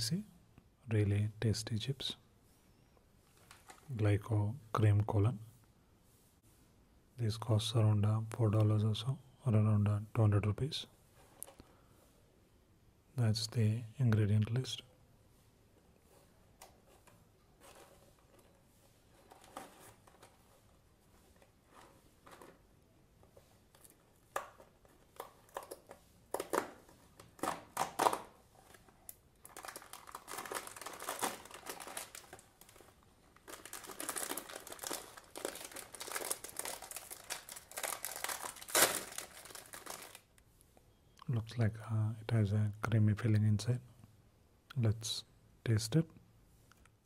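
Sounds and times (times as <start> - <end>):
plastic pouch crinkling: 23.7 - 40.4.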